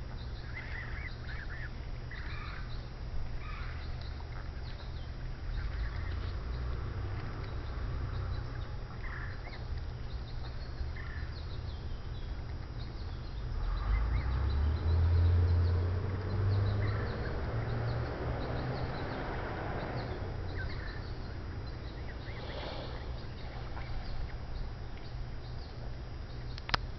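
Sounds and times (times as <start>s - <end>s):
low rumble on microphone: 0.0s - 26.9s
geese calling: 0.4s - 6.7s, 7.5s - 11.7s, 16.6s - 26.5s.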